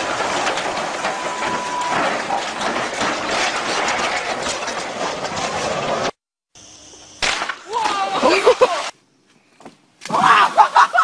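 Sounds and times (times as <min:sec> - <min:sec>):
steel tracks clanking: 0:00.0 - 0:06.2.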